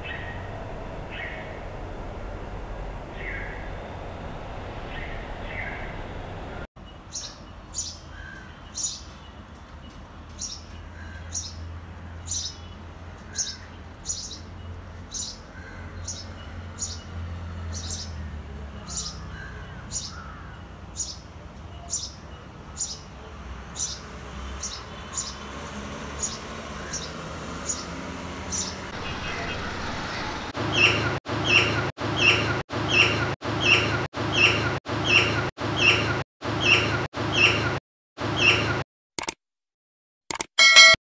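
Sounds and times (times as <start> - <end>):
sparrow chirping: 6.8 - 25.6, 26.2 - 29.6.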